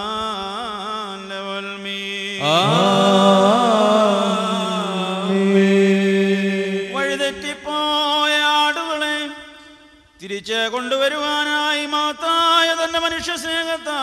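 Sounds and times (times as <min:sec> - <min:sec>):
men singing a slow chant: 0:02.2 - 0:09.2.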